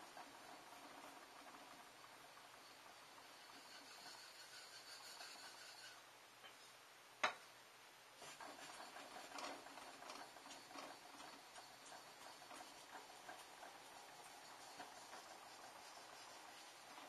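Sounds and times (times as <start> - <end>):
knife scraping on whetstone: 3.2 - 6.0.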